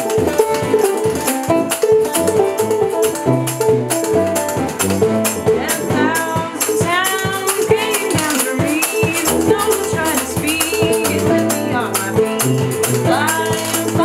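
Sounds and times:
tuba bass line: 0.0 - 7.8
snare drum beat: 0.0 - 11.4
acoustic guitar: 0.0 - 14.0
banjo: 0.0 - 14.0
woman singing: 5.4 - 14.0.

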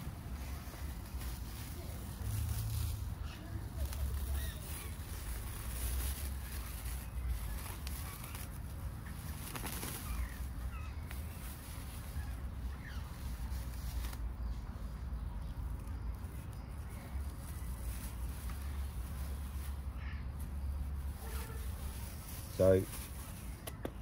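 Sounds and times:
cling film crinkling and rustling: 0.0 - 14.4.

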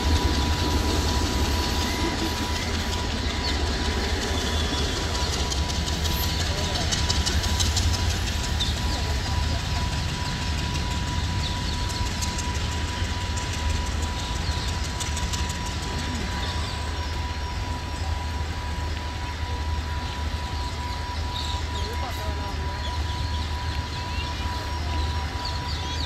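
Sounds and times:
wheels clicking over rail joints: 0.0 - 19.5
train rumbling past: 0.0 - 26.0.

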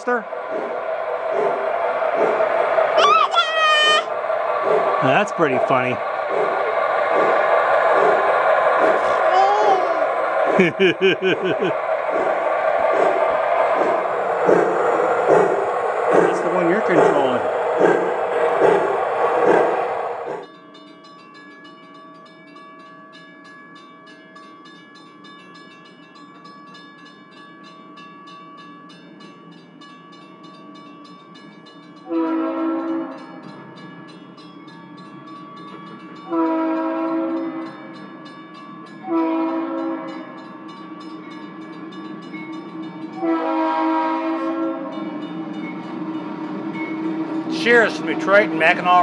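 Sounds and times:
train running drone: 0.0 - 20.6, 24.7 - 49.0
train horn blasts: 32.1 - 33.4, 36.3 - 37.8, 39.0 - 40.3, 43.2 - 45.1.

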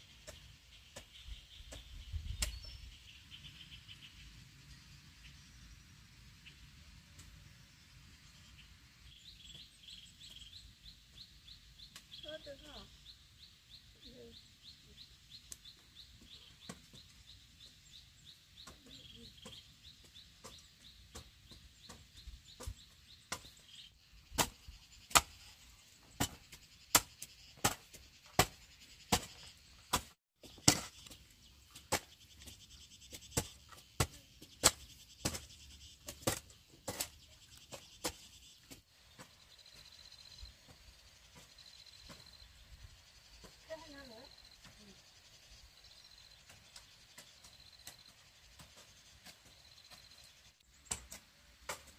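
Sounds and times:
hoes chopping into dry soil: 0.2 - 2.8, 15.4 - 42.5, 46.2 - 51.9.

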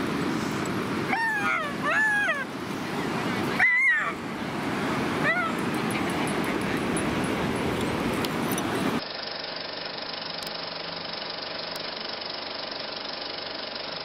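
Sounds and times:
surf washing on beach: 0.0 - 9.0.

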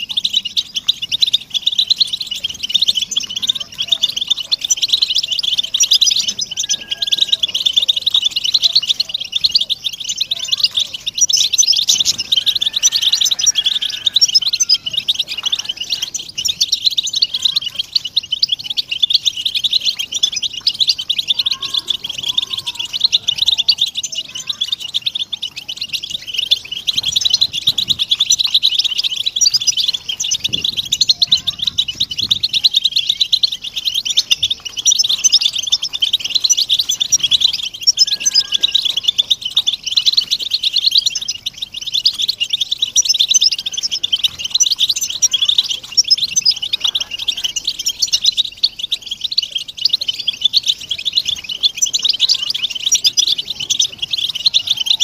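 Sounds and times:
flock of finches twittering: 0.0 - 55.0.

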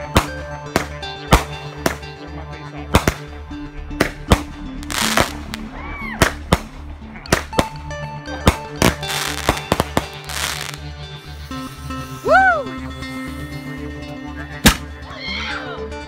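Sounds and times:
background music: 0.0 - 16.0
fireworks bangs: 4.0 - 5.6, 8.5 - 10.8
fireworks crackling hiss: 4.8 - 5.6, 8.8 - 12.2.

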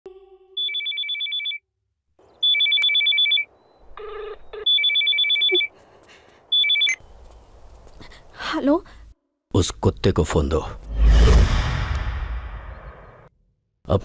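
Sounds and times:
telephone ringing: 0.6 - 1.6, 2.4 - 5.7, 6.5 - 7.0.

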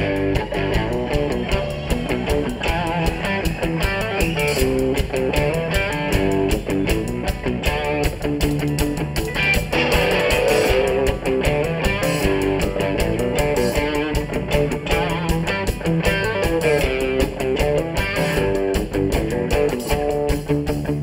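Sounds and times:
drum kit: 0.0 - 21.0
electric bass: 0.0 - 21.0
electric guitar: 0.0 - 21.0.

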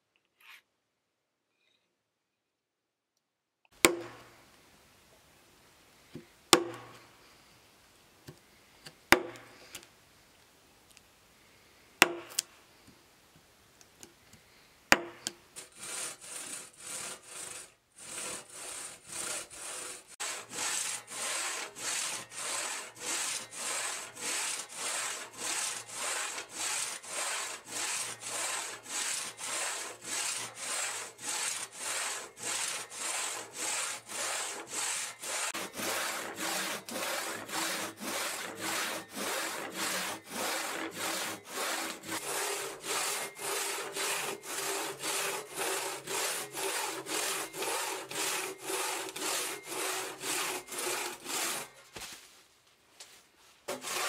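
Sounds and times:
hand saw cutting wood: 6.5 - 7.0, 14.9 - 51.8, 53.7 - 54.0.

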